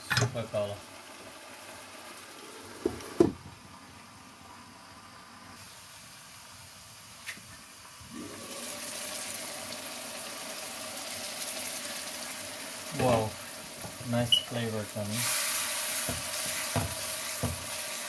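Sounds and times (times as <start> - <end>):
sauce simmering and bubbling: 7.5 - 14.5.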